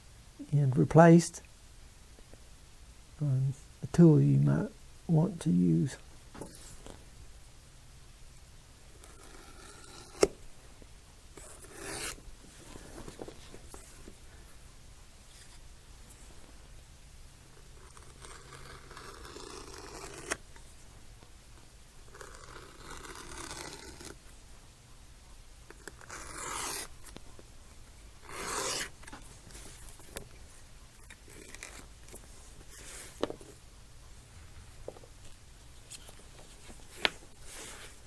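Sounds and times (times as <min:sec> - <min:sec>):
knife cutting through leather: 0:11.4 - 0:12.2, 0:17.9 - 0:20.4, 0:22.2 - 0:24.2, 0:25.8 - 0:26.9, 0:28.2 - 0:29.2.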